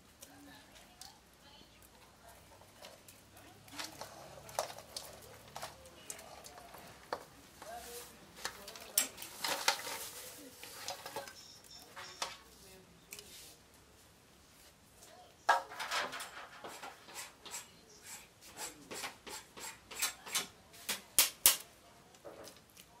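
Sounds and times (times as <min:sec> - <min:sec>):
scraping and rubbing: 0:02.3 - 0:13.6, 0:15.5 - 0:20.3.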